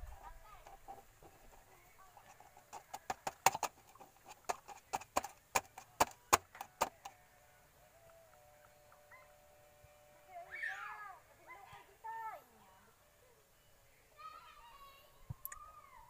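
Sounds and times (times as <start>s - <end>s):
oil glugging: 0.0s - 7.0s
plastic bottle ticking and popping: 0.6s - 7.2s.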